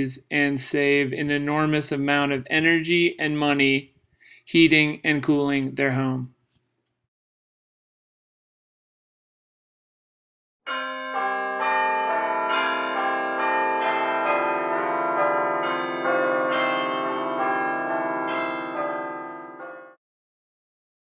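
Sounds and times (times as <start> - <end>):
bell-like chimes tune: 10.7 - 20.0.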